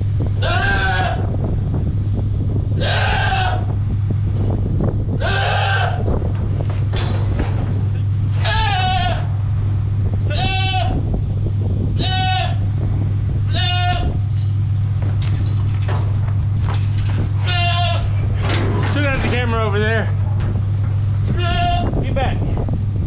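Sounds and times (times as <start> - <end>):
steady low hum: 0.0 - 23.0
goat bleating: 0.4 - 1.2, 5.2 - 6.1, 8.4 - 9.3, 10.2 - 11.0, 12.0 - 12.6, 13.5 - 14.3, 17.4 - 18.4, 21.2 - 22.0.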